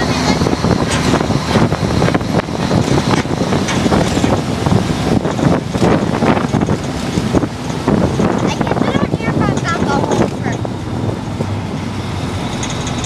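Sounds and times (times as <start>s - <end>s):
road noise: 0.0s - 13.0s
truck engine: 0.0s - 13.0s
wind buffeting microphone: 0.0s - 13.0s.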